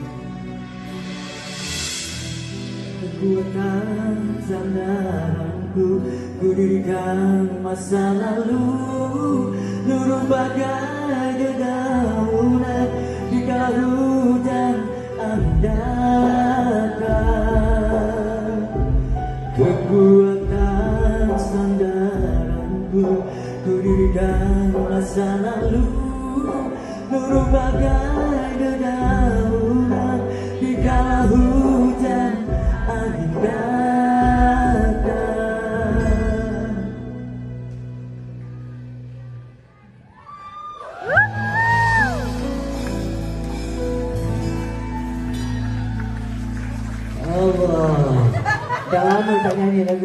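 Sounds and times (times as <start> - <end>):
band with guitar and bass: 0.0 - 50.0
man singing into a microphone: 2.9 - 37.9.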